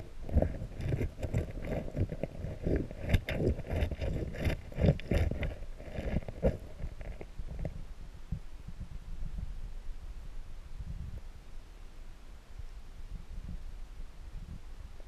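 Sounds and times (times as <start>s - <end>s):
boot scraping stones underwater: 0.0s - 7.8s.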